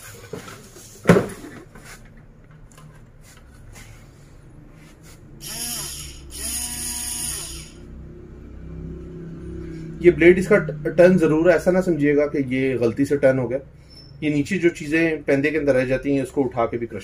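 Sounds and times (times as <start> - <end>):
hand blender motor: 5.4 - 7.9.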